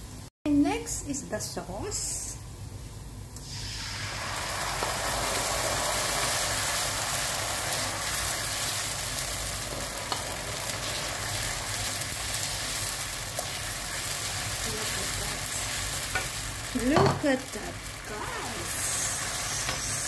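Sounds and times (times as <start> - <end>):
sauce sizzling in frying pan: 2.7 - 20.0
wooden spoon stirring in pan: 8.2 - 20.0.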